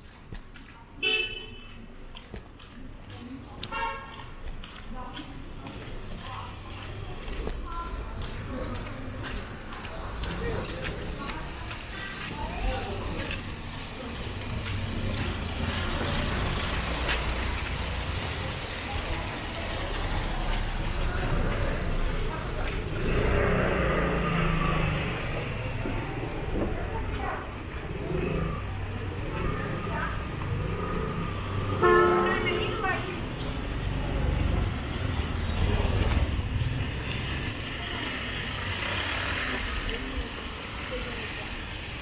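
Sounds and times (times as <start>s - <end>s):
vehicle engines rumbling: 0.0s - 42.0s
tyre hiss on wet road: 37.3s - 42.0s.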